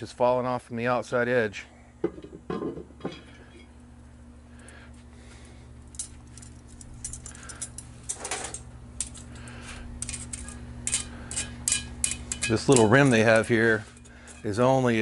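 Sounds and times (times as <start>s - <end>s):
steady low hum: 0.0s - 15.0s
metal tools scraping on cast iron: 7.0s - 15.0s.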